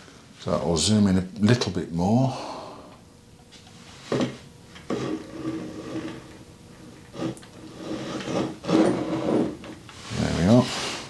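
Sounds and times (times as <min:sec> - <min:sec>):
camera scraping across wood: 0:04.8 - 0:10.3.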